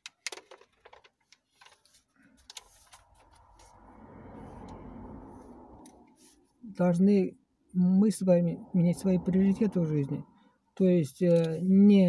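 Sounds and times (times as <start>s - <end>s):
low rushing noise: 2.8s - 10.4s.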